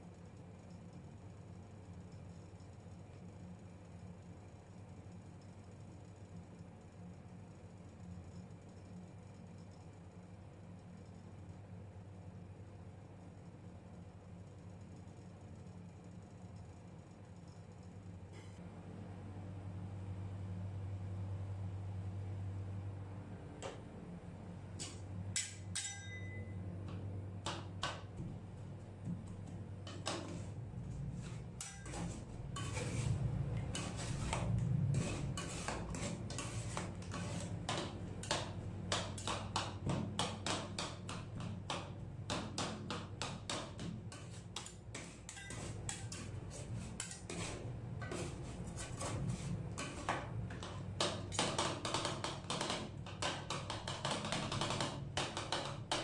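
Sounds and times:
low steady hum: 0.0s - 51.4s
metal spatulas chopping on plate: 24.8s - 26.4s, 31.6s - 33.1s, 33.7s - 49.2s.

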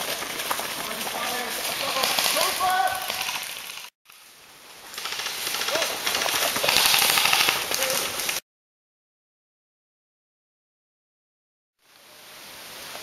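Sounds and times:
movement noise hiss: 0.0s - 8.4s, 11.8s - 13.0s
airsoft guns firing rapidly: 5.0s - 8.2s.

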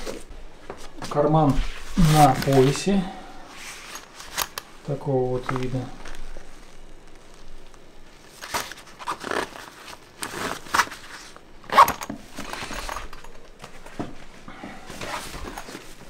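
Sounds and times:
nylon fabric rustling: 0.0s - 16.0s
backpack zip: 8.4s - 13.4s.

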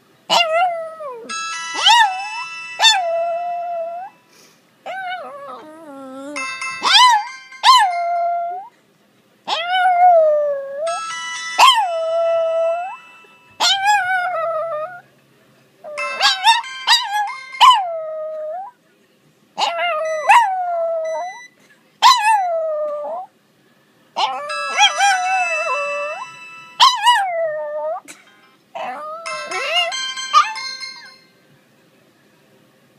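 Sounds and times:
phone ringtone: 1.3s - 4.3s, 6.3s - 8.6s, 10.8s - 14.3s, 15.9s - 18.0s, 19.9s - 21.5s, 24.2s - 31.5s.

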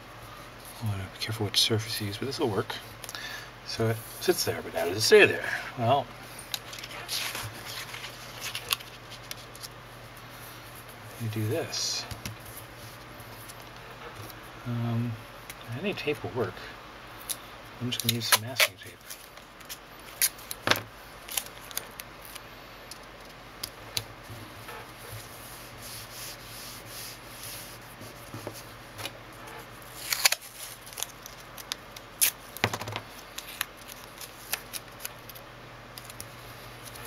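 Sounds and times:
hands rustling on paper: 6.4s - 9.7s
masking tape ripping: 18.0s - 20.6s, 29.9s - 32.6s, 33.3s - 35.4s.

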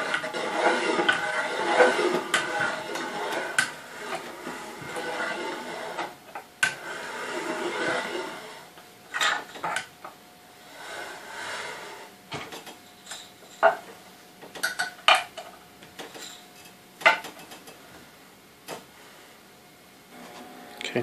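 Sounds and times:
metal scraping: 0.0s - 9.8s, 20.1s - 21.0s.

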